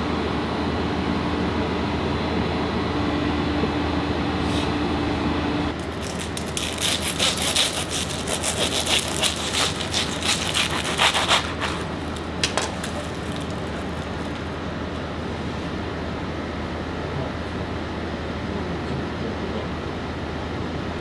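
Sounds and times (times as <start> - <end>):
knife sawing through crusty pastry: 5.8 - 14.5.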